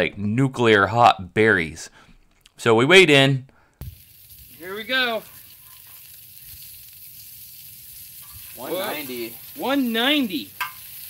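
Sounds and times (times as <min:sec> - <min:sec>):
bacon sizzling in a skillet: 0:03.8 - 0:11.0.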